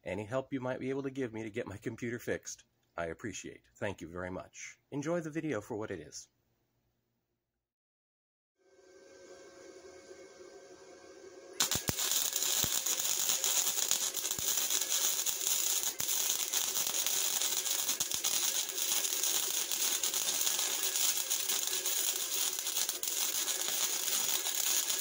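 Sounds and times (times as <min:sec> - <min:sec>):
welder arc crackling: 0:11.5 - 0:25.0.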